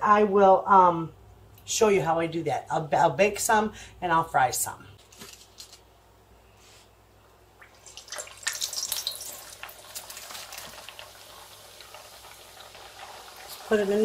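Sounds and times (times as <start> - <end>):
oil sizzling and crackling: 7.6 - 14.0.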